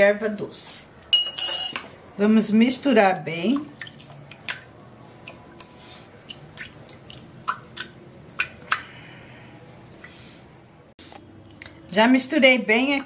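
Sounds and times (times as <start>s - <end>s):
spatula stirring liquid squishing: 3.6s - 10.2s.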